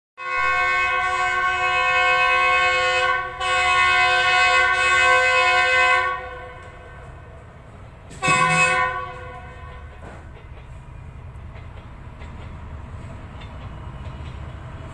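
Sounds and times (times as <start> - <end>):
locomotive horn blast: 0.2 - 7.3, 8.1 - 10.3
low train rumble: 0.2 - 14.9.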